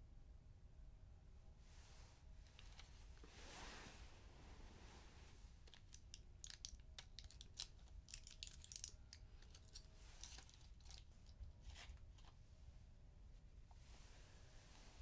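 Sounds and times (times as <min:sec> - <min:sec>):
small object clicking and crinkling: 0:05.6 - 0:12.4.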